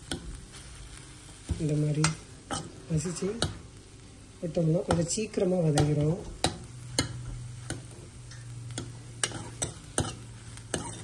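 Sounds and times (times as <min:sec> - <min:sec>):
spatula scraping a pan: 0:00.0 - 0:03.7, 0:05.8 - 0:11.0
faint sizzle: 0:00.0 - 0:11.0.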